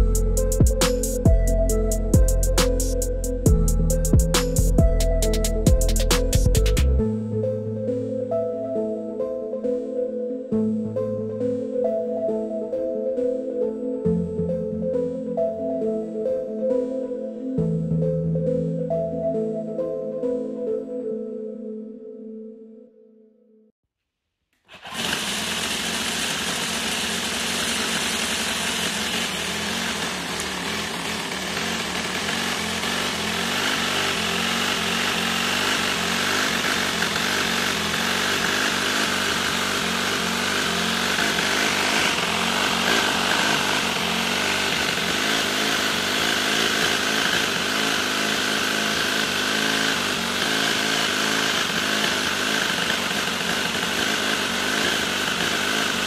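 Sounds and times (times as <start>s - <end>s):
small engine buzzing: 0.0s - 7.2s, 24.6s - 56.0s.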